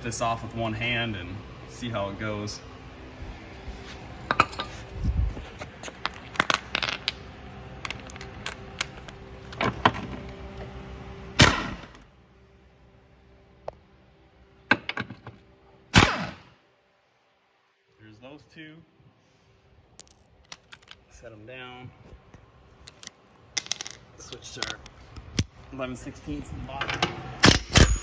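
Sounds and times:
metal clinks and knocks: 6.0s - 10.1s, 20.0s - 21.1s, 22.8s - 25.5s.

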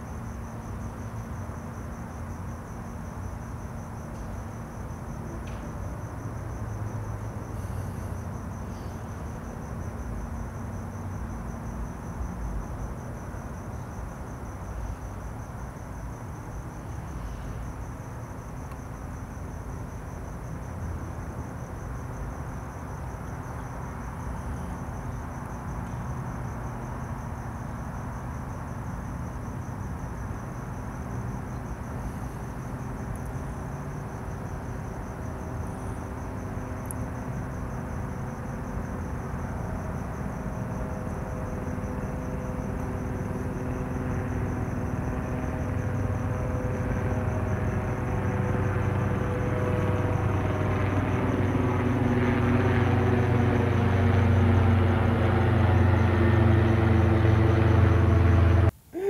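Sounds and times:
crickets chirping: 0.0s - 59.0s
distant engine drone: 27.8s - 59.0s.

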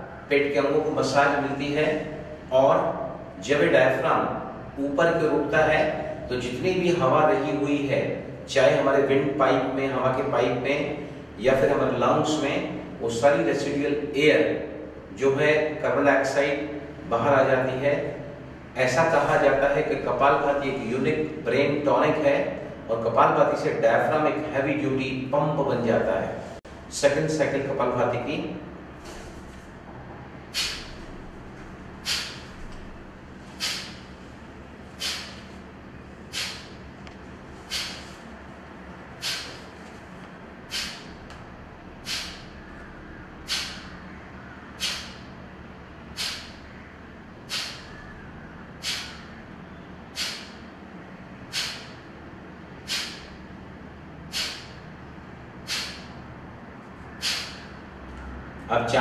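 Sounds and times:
forceful nasal exhalations: 30.5s - 31.2s, 32.0s - 32.8s, 33.4s - 34.2s, 34.9s - 35.6s, 36.2s - 36.9s, 37.5s - 38.4s, 39.1s - 39.9s, 40.6s - 41.3s, 41.9s - 42.7s, 43.4s - 44.1s, 44.7s - 45.3s, 46.0s - 46.7s, 47.4s - 48.1s, 48.7s - 49.4s, 50.1s - 50.8s, 51.4s - 52.1s, 52.8s - 53.5s, 54.3s - 54.9s, 55.6s - 56.2s, 57.0s - 57.8s.

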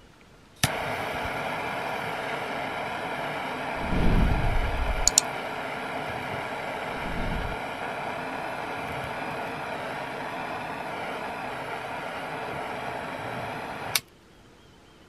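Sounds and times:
torch flame hissing: 0.6s - 14.0s
low rumble: 3.8s - 5.2s, 6.9s - 7.6s
lighter clicking alight: 4.4s - 5.3s
sharp ticks: 5.0s - 5.2s.

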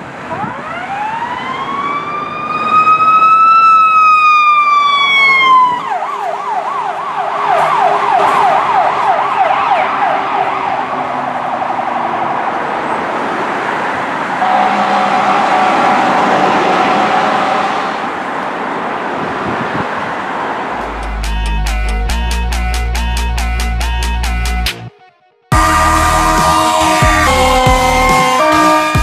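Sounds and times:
ambulance siren wailing and yelping: 0.3s - 12.7s
steady tone: 14.3s - 18.4s, 25.5s - 28.7s.

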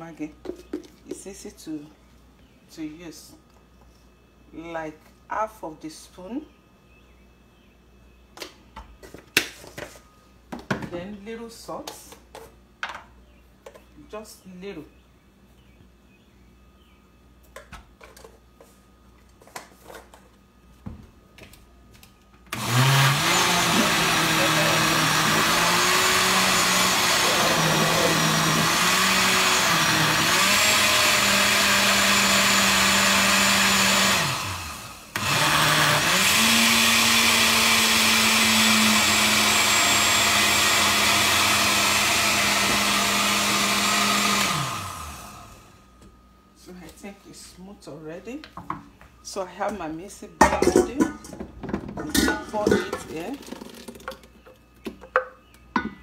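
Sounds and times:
blender motor running: 22.5s - 45.8s.

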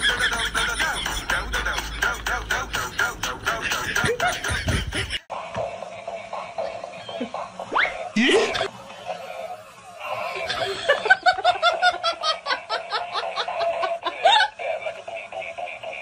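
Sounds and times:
person laughing hard: 0.0s - 2.2s, 3.5s - 5.3s, 6.0s - 8.7s, 10.0s - 16.0s.

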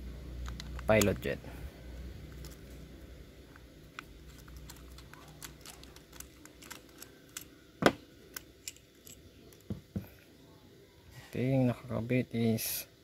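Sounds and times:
small parts clicking and tapping: 0.4s - 1.4s, 2.2s - 2.8s, 3.5s - 10.1s.

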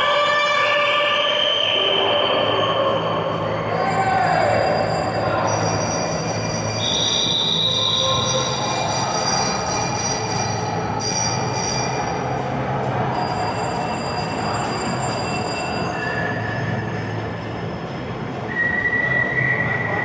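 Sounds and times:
high squeal: 0.8s - 12.3s, 13.2s - 20.0s
bicycles rolling echoing rumble: 2.0s - 20.0s.

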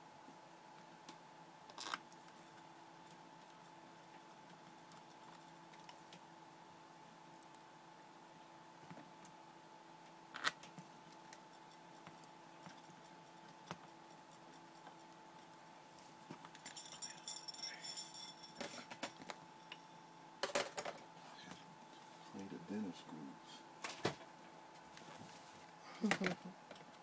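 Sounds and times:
faint steady hum: 0.0s - 27.0s
metallic rattle of small pieces: 16.6s - 19.2s.

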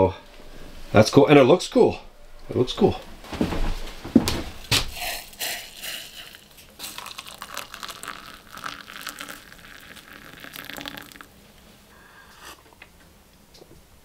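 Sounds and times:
water pouring into a plastic mug: 5.2s - 11.4s.

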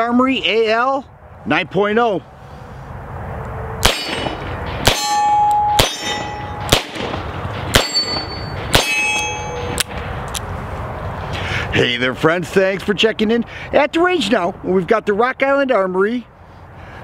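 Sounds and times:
short metallic ring: 3.8s - 6.8s, 7.6s - 9.8s.

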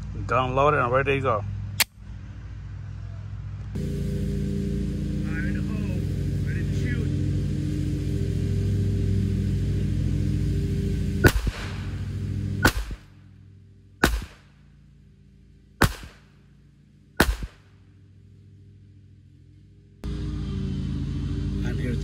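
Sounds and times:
low engine hum: 0.0s - 22.0s
pistol shots: 11.2s - 11.8s, 12.6s - 13.1s, 14.0s - 14.5s, 15.8s - 16.3s, 17.2s - 17.7s.

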